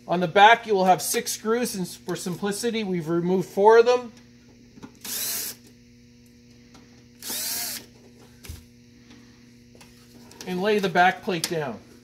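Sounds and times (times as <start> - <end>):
cordless drill whirring: 5.0 - 5.7, 7.2 - 8.0.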